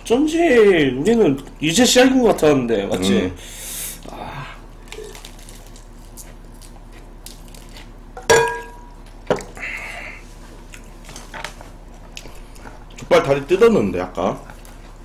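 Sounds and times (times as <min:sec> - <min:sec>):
tableware clink: 0:08.2 - 0:08.9.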